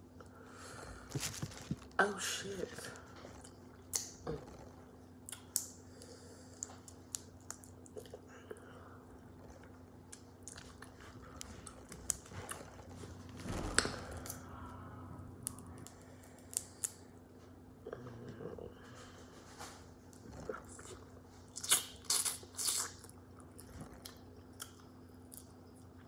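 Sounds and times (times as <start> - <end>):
chewing: 9.2 - 13.0, 20.1 - 26.0.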